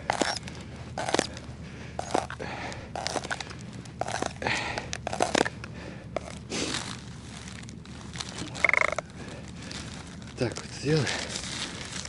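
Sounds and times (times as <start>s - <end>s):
crunching and rustling in snow: 0.0s - 2.4s, 3.0s - 5.6s, 6.2s - 12.0s.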